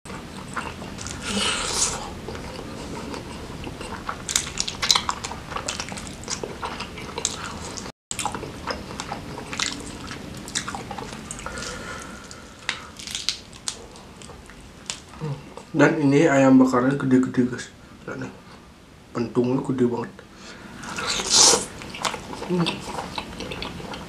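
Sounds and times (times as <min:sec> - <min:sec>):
chewing and mouth smacks: 0:00.1 - 0:11.7, 0:12.6 - 0:15.7, 0:20.8 - 0:24.0.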